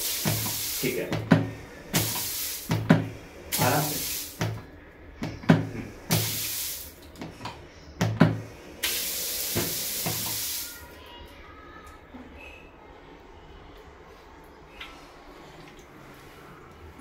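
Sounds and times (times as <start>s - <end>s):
water hissing from shower: 0.0s - 4.5s, 5.8s - 7.0s, 8.5s - 11.0s.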